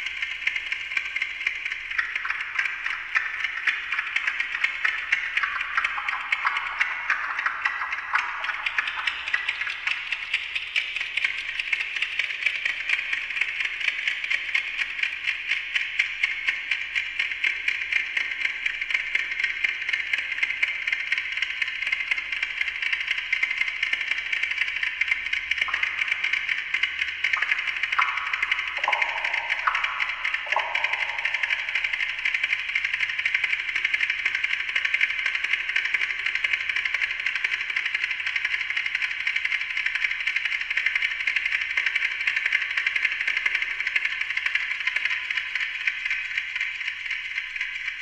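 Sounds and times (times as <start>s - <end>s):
clock ticking through delay effect: 0.0s - 11.8s, 23.9s - 37.0s.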